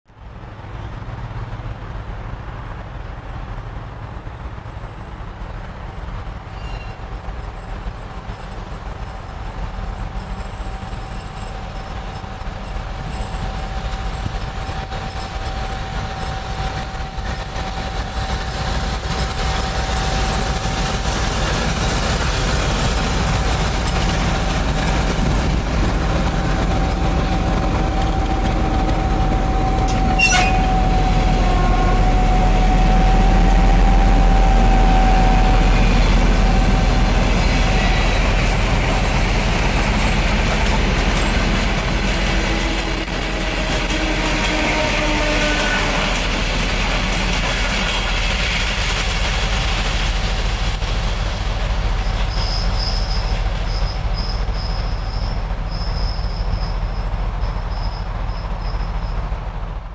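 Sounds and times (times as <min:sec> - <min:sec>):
diesel locomotive engine rumbling: 0:00.1 - 0:59.9.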